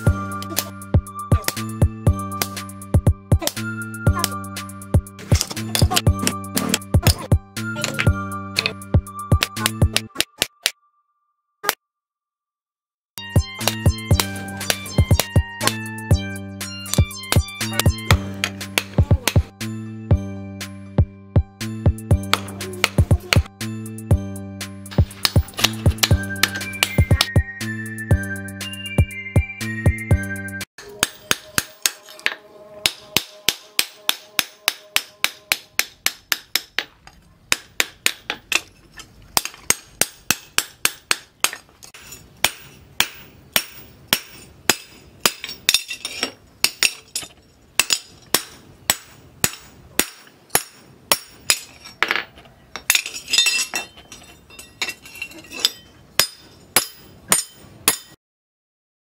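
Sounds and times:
hammer striking metal on anvil: 16.9s - 19.5s, 22.2s - 23.5s, 25.0s - 27.3s, 30.8s - 36.9s, 39.4s - 52.2s, 52.8s - 58.2s.

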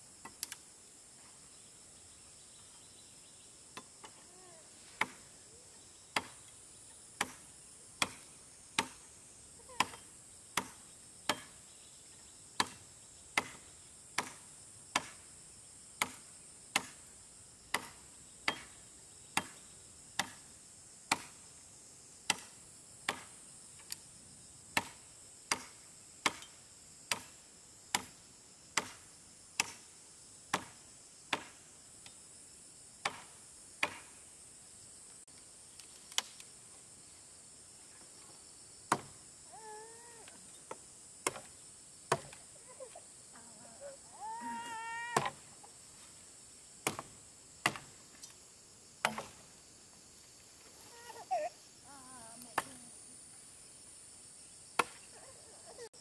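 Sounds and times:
insects chirring: 0.0s - 56.0s
chopping strikes: 5.0s - 5.2s, 6.2s - 6.4s, 7.2s - 7.4s, 8.0s - 9.1s, 10.6s - 11.6s, 12.6s - 12.8s, 13.4s - 13.6s, 14.2s - 15.2s, 16.0s - 17.1s, 17.7s - 18.8s, 20.2s - 20.4s, 21.1s - 21.4s, 22.3s - 22.5s, 24.8s - 26.5s, 27.1s - 28.2s, 28.8s - 29.0s, 29.6s - 29.8s, 30.5s - 31.6s, 33.0s - 34.1s, 38.9s - 39.2s, 40.7s - 41.5s, 42.1s - 42.4s, 45.2s - 45.4s, 46.8s - 48.0s, 49.0s - 49.5s, 54.8s - 55.0s.

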